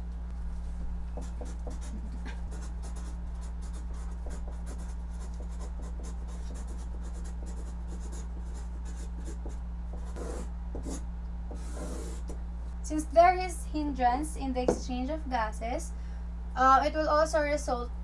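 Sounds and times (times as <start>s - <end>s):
steady low hum: 0.0s - 18.0s
pen scratching on paper: 1.2s - 12.4s.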